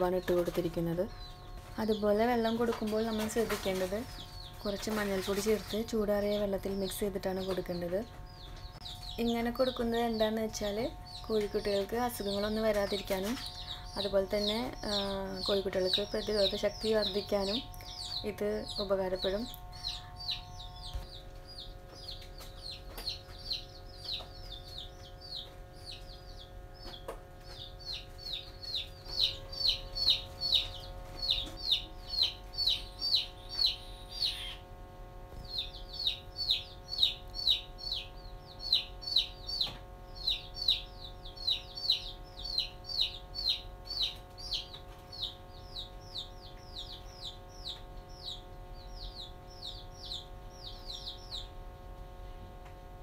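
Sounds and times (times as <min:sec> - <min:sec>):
chicks peeping: 0:00.0 - 0:34.7, 0:35.3 - 0:52.7.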